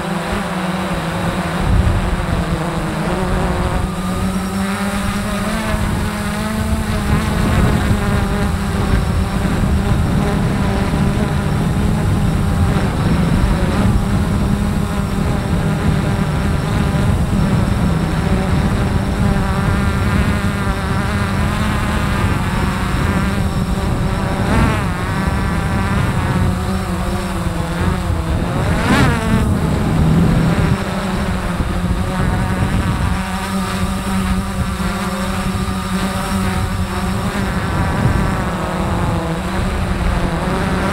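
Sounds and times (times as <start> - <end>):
drone propellers buzzing: 0.0 - 40.9.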